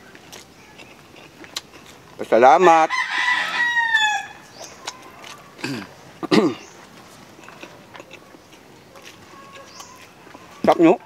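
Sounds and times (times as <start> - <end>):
rooster crowing: 2.6 - 5.6, 9.3 - 10.6.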